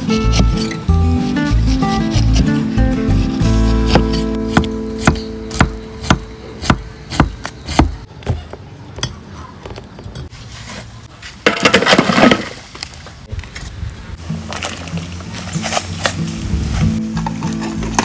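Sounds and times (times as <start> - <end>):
knife chopping on wooden board: 3.7 - 8.0.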